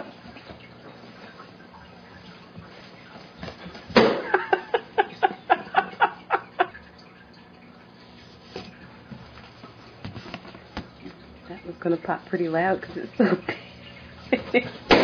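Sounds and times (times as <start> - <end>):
person laughing: 4.2 - 6.8.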